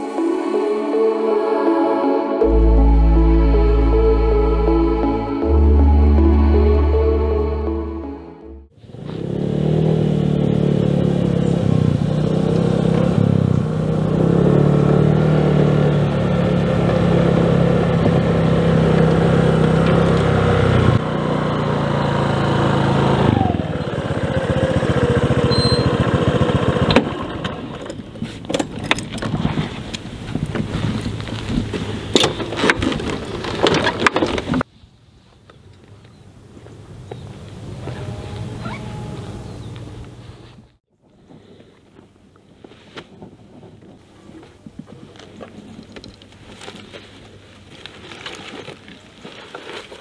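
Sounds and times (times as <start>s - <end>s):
motor scooter engine running: 8.9s - 28.1s.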